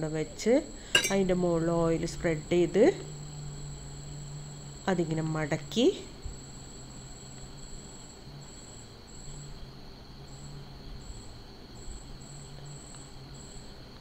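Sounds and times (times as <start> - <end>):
faint high-pitched whine: 0.0 - 14.0.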